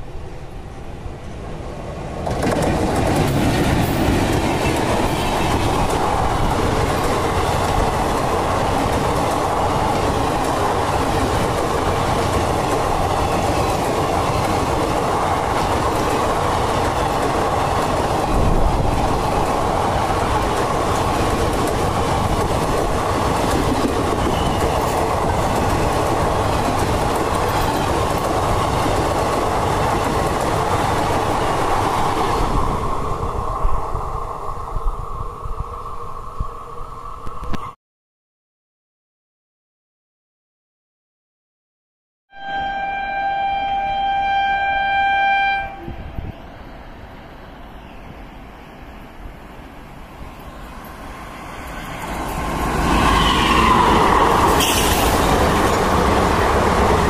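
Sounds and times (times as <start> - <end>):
train passing at speed: 0.0 - 37.8, 42.4 - 57.0
wheels clattering over rail joints: 2.2 - 6.1, 6.7 - 31.5.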